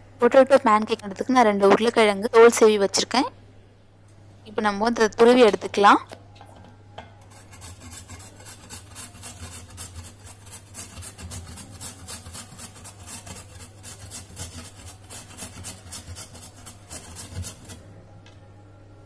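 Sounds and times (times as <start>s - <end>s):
potato grating on metal grater: 7.3s - 17.9s.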